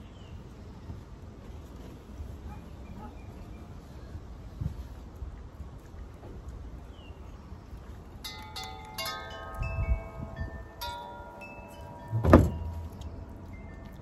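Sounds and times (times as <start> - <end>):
wind chimes ringing: 8.2 - 14.0
loud thump: 12.1 - 13.0.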